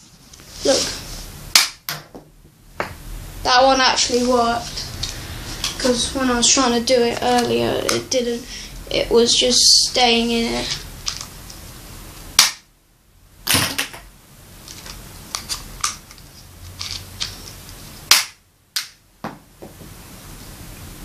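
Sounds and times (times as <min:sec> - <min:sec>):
toy crossbow snapping: 0:01.6 - 0:01.8, 0:18.1 - 0:19.0.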